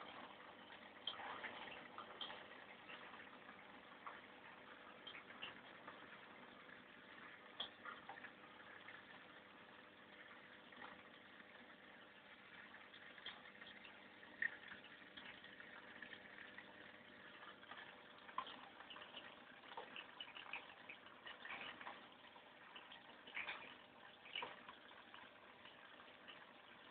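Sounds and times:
small water splashes: 0:07.1 - 0:26.9.

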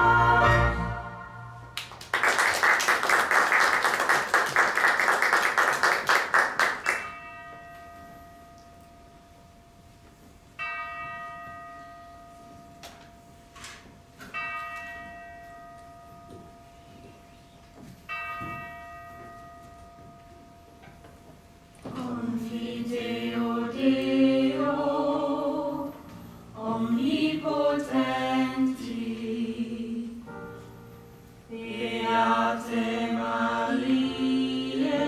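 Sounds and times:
audience applause: 0:01.8 - 0:07.0
church bell tolling: 0:10.6 - 0:17.4, 0:18.0 - 0:21.0.

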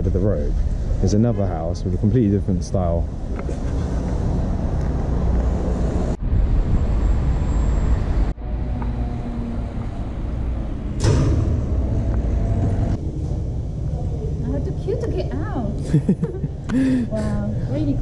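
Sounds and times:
street noise rumble: 0:00.0 - 0:18.0.

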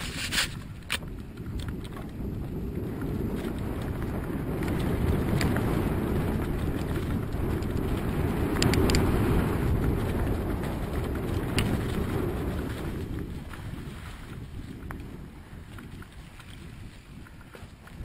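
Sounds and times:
bike clicks and knocks: 0:00.0 - 0:09.1, 0:11.0 - 0:12.0
wind buffeting microphone: 0:00.0 - 0:18.0.

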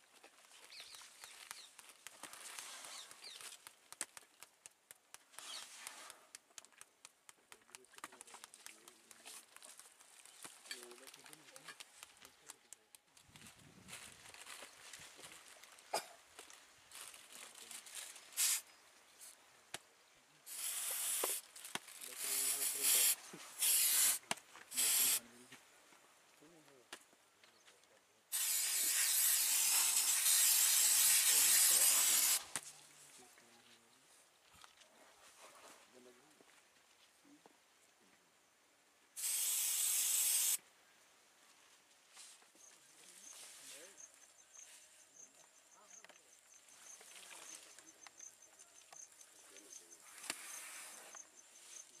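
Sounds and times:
aerosol spray hissing: 0:18.4 - 0:18.6, 0:20.5 - 0:21.4, 0:22.2 - 0:25.2, 0:28.3 - 0:32.5, 0:39.2 - 0:40.6
insect chirping: 0:42.6 - 0:52.0.

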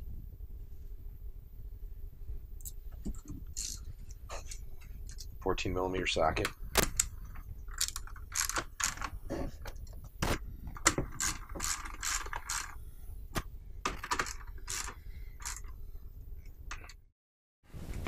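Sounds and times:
ratchet wrench clicking: 0:10.9 - 0:12.8, 0:13.9 - 0:15.7.

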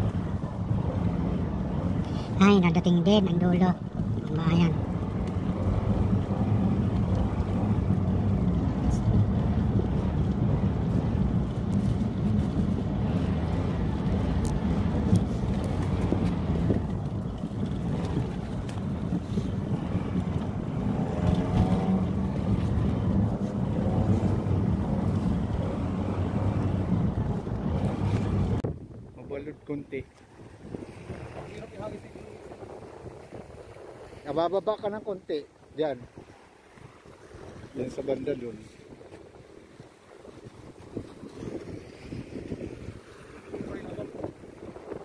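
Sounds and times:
car engine and road noise: 0:00.0 - 0:29.0.

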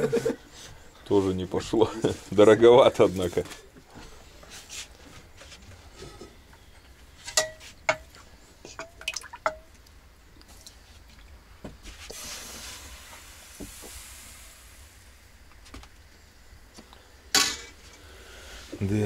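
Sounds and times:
soft hiss: 0:00.1 - 0:19.0
tableware clinking: 0:07.2 - 0:08.1, 0:17.4 - 0:17.8.

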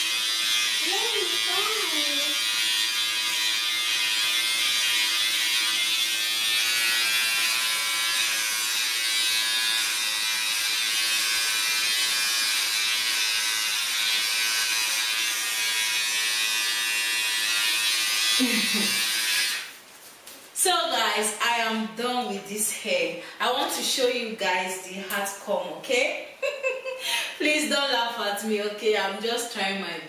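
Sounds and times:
electric hair clippers buzzing: 0:00.0 - 0:19.8.

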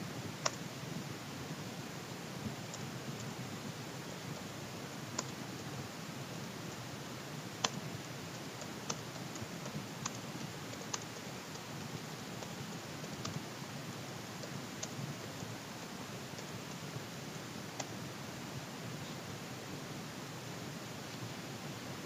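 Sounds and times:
steady hiss: 0:00.0 - 0:22.0
keyboard keystroke clicks: 0:05.2 - 0:05.4, 0:08.6 - 0:11.6, 0:12.4 - 0:13.4.

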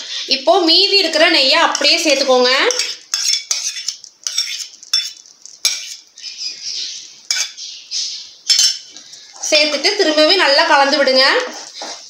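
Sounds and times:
spoon clinking against steel cup: 0:08.5 - 0:08.9.

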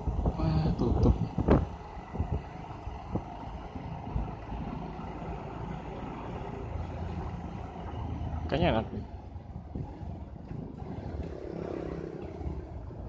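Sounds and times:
road noise: 0:00.0 - 0:13.0
motorcycle engine running: 0:09.2 - 0:13.0.

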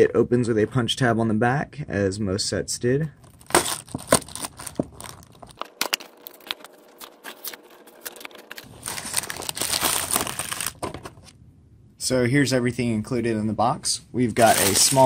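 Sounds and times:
cardboard box tearing open: 0:03.4 - 0:05.3, 0:07.3 - 0:10.8.

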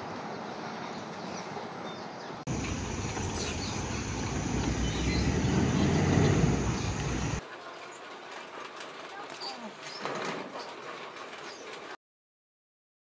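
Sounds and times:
high whine: 0:02.5 - 0:07.4
vehicle passing rumble: 0:02.5 - 0:07.4.

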